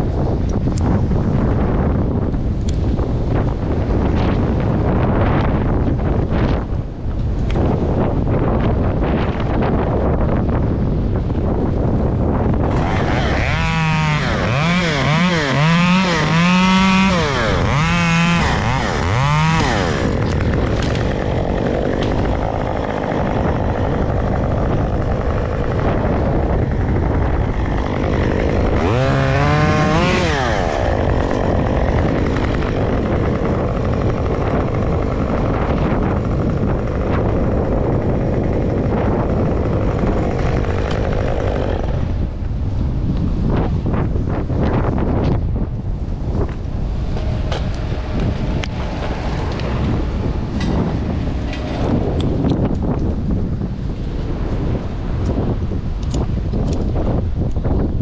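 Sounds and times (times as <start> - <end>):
wind noise on microphone: 0.0 - 58.0
chainsaw revving: 12.6 - 42.5, 46.5 - 52.7.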